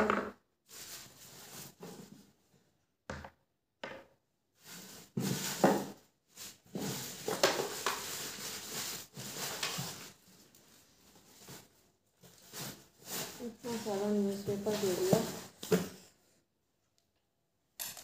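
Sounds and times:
newspaper rustling and crumpling: 6.4 - 10.6, 11.2 - 15.6.

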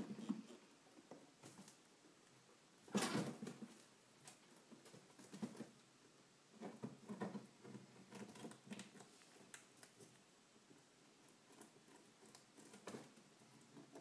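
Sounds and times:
rustles and taps: 3.0 - 5.9, 6.5 - 10.2.

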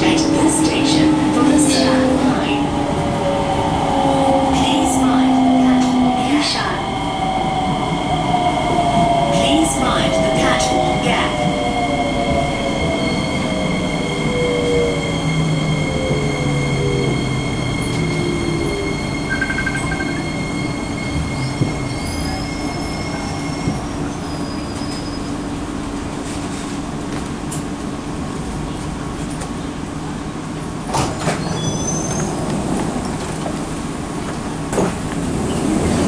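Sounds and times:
train rumble: 0.0 - 36.0
train knocks: 21.2 - 22.0.

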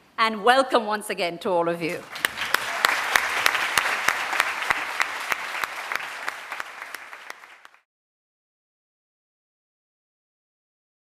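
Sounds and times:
audience applauding: 2.0 - 7.9.

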